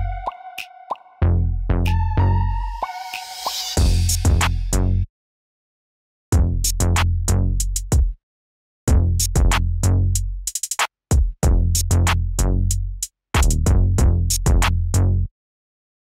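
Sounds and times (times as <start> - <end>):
electronic music with heavy bass: 0.0 - 5.0.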